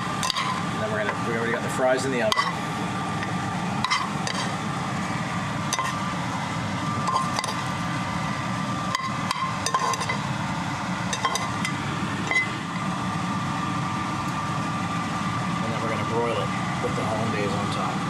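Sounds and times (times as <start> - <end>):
steady hum: 0.0 - 18.0
metal tongs clinking on pans: 0.2 - 0.6, 2.3 - 2.6, 3.8 - 4.6, 5.7 - 6.0, 7.1 - 7.6, 9.0 - 10.2, 11.1 - 11.7.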